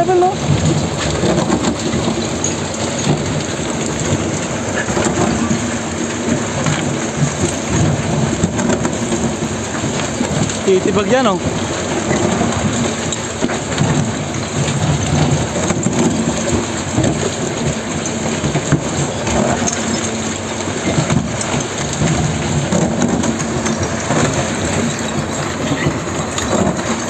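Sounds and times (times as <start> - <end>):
boring machine grinding rock: 0.0 - 27.0.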